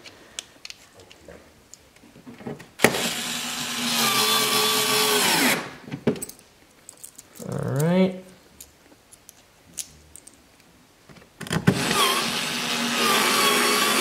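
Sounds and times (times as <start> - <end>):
cordless drill whining: 2.8 - 5.7, 11.6 - 14.0.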